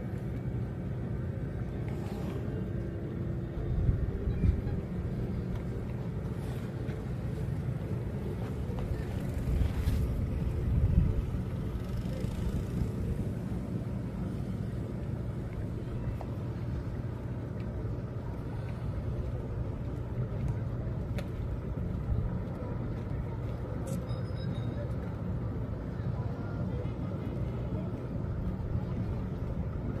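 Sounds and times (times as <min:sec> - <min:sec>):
boat engine humming: 0:00.0 - 0:30.0
wind buffeting microphone: 0:03.4 - 0:06.4, 0:07.8 - 0:14.0.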